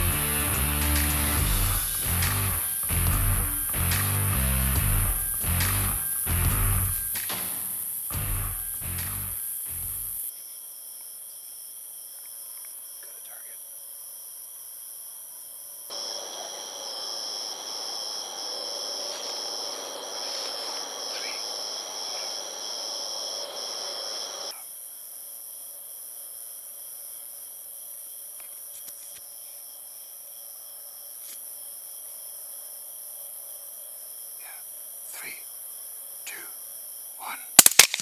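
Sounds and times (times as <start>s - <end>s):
night insects chirping: 0.0s - 38.0s.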